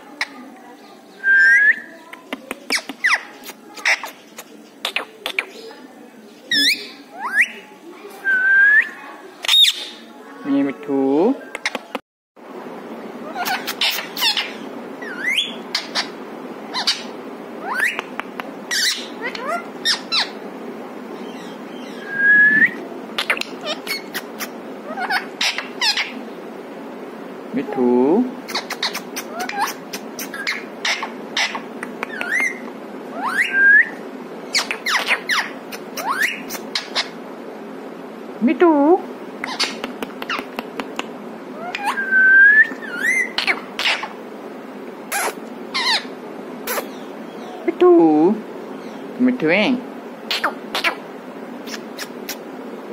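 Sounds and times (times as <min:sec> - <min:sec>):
low background noise: 0:00.0 - 0:52.9
parakeet chirps and squawks: 0:02.7 - 0:05.7, 0:06.5 - 0:07.7, 0:08.8 - 0:10.1, 0:13.2 - 0:18.1, 0:18.7 - 0:20.4, 0:21.2 - 0:26.2, 0:28.4 - 0:33.6, 0:34.5 - 0:37.2, 0:39.4 - 0:40.5, 0:41.5 - 0:44.2, 0:45.1 - 0:47.6, 0:50.3 - 0:52.5
parakeet clicks: 0:17.8 - 0:18.6, 0:31.8 - 0:32.4, 0:39.4 - 0:41.9
parakeet whistles swooping upward: 0:22.0 - 0:22.8
parakeet whistle: 0:32.2 - 0:37.1, 0:41.6 - 0:44.1.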